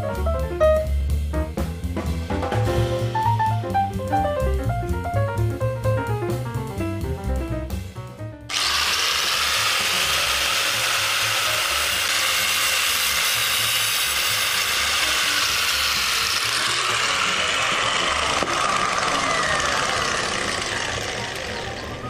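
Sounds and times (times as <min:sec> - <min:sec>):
angle grinder cutting steel cable: 0:08.5 - 0:22.0.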